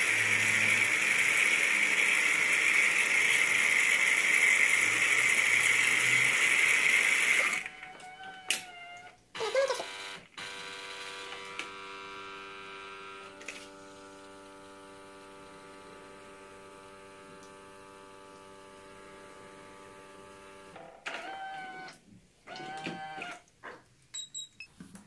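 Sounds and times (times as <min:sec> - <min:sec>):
coffee machine pump humming: 0:00.0 - 0:23.4.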